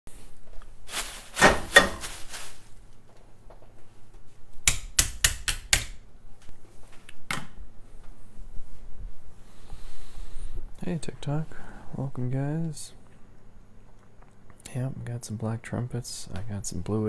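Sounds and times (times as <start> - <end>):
rustle on kitchen counter: 0.1 - 2.9.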